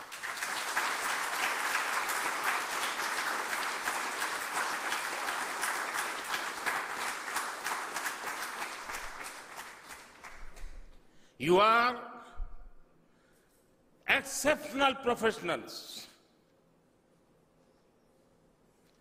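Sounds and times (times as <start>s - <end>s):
crowd applauding: 0.0s - 10.9s.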